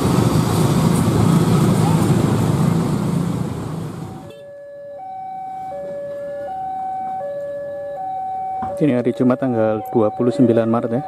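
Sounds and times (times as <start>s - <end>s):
motorcycle and car traffic: 0.0s - 4.5s
two-tone crossing alarm: 4.2s - 11.0s.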